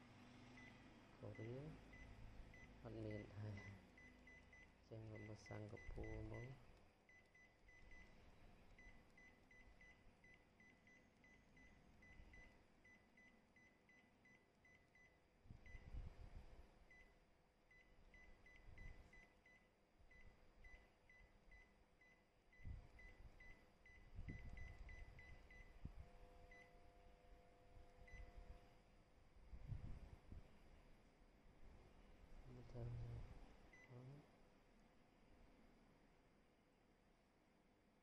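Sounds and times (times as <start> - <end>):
touchscreen key beeps: 2.6 - 8.1.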